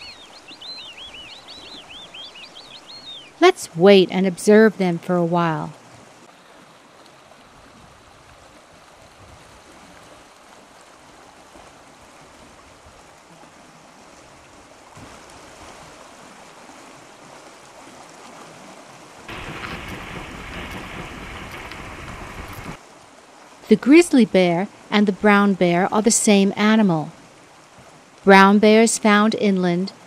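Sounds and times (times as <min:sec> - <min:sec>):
stream water flowing: 0:00.0 - 0:30.0
wind: 0:00.0 - 0:30.0
loud steady rush: 0:19.3 - 0:22.8.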